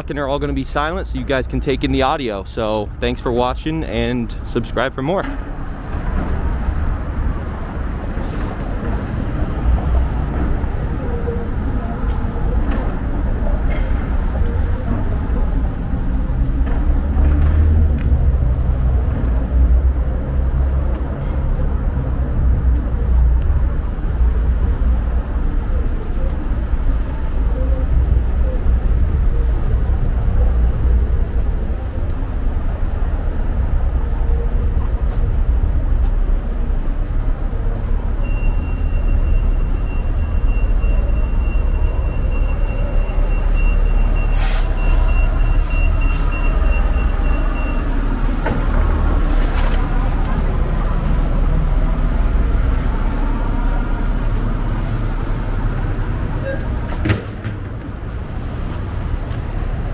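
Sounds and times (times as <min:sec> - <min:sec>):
traffic and engine rumble: 0:00.0 - 0:59.9
machine alarm beep: 0:38.2 - 0:47.9.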